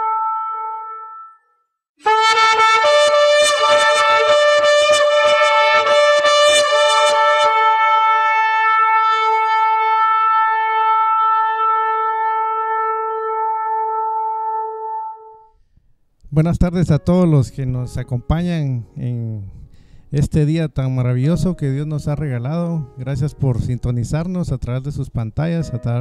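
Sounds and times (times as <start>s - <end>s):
ram's horn blasts: 2.0s - 15.3s.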